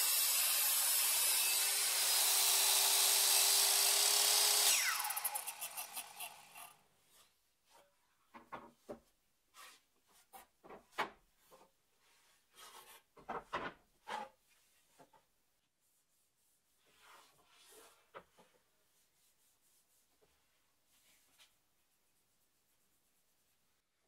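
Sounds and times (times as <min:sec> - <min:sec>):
circular saw blade spinning down: 0:00.0 - 0:06.7.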